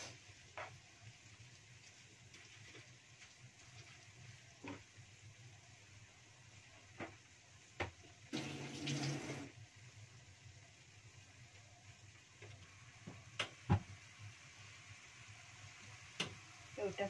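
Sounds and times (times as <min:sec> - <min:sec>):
faint steady hiss: 0:00.0 - 0:17.0
food simmering in a wok: 0:00.0 - 0:17.0
water gushing from tap: 0:08.2 - 0:09.6.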